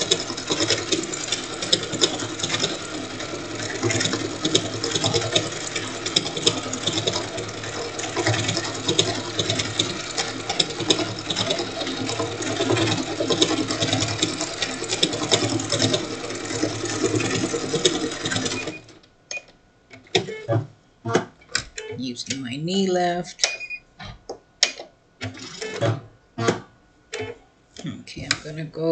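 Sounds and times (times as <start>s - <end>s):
sewing machine running: 0.0s - 19.0s.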